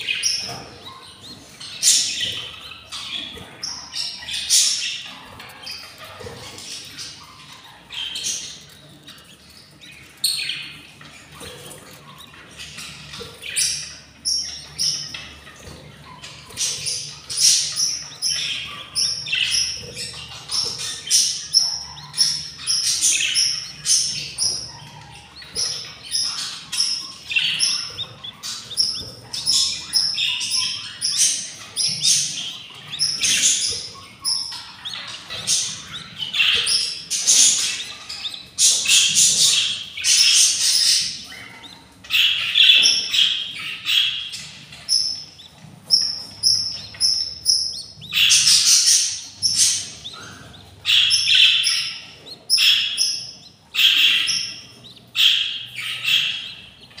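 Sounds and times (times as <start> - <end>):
budgerigars chirping: 0.0 - 57.0.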